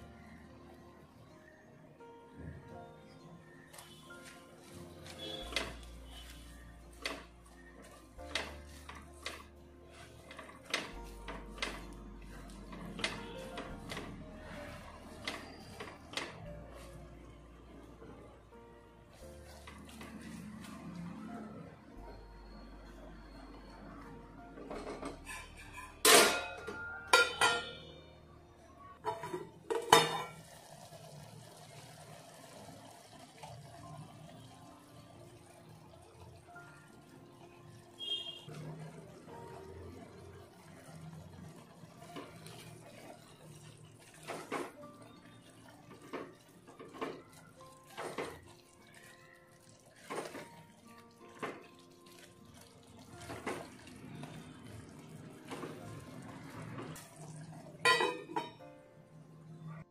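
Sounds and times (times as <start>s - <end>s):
spatula stirring wet curry: 3.7s - 17.2s, 38.0s - 58.4s
metal kitchenware clanking: 5.0s - 16.5s, 24.6s - 28.0s, 29.0s - 30.4s, 57.8s - 58.6s.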